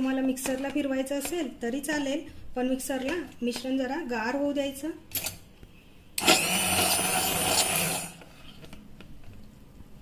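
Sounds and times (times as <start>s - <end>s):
immersion blender whirring: 6.2s - 8.3s.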